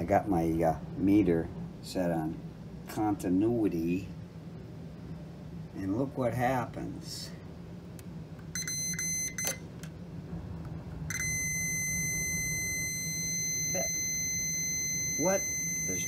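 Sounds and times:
multimeter continuity beeping: 8.5s - 9.7s, 11.1s - 16.0s.

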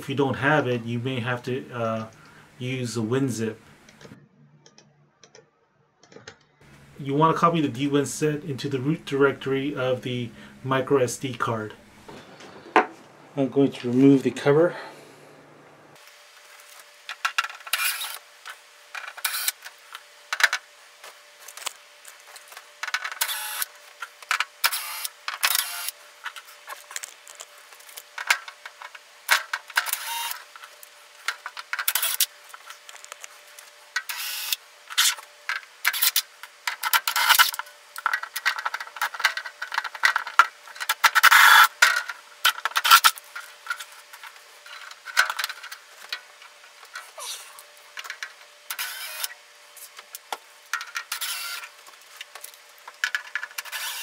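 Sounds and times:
cordless drill-driver: 48.7s - 49.4s, 51.1s - 51.7s, 53.6s - 54.0s.

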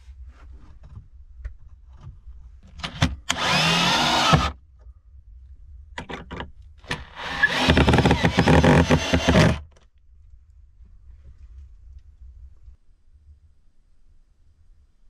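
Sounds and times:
drill driving screws into wood: 2.8s - 4.6s, 6.8s - 9.7s.

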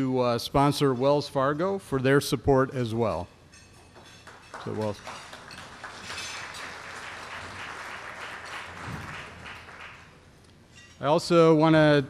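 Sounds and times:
audience applauding: 4.3s - 10.2s.

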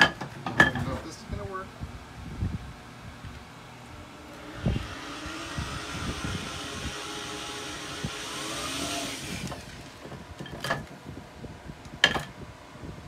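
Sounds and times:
cordless drill whining: 3.9s - 10.4s.

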